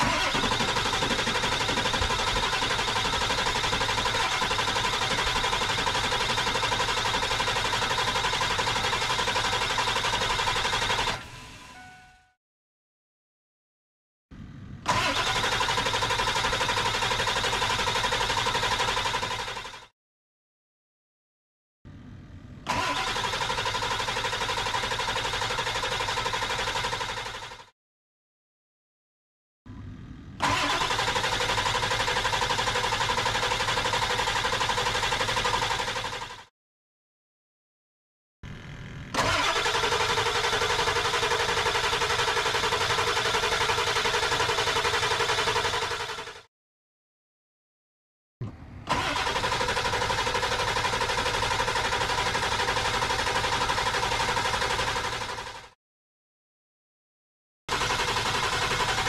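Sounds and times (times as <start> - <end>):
diesel engine cranking on starter: 0.0 - 11.9, 14.8 - 19.9, 22.6 - 27.7, 30.3 - 36.5, 38.6 - 46.5, 48.4 - 55.8, 57.7 - 59.0.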